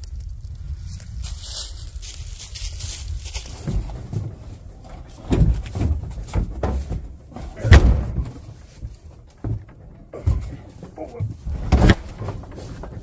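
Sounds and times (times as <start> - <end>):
footsteps thumping on truck bed: 3.4 - 13.0.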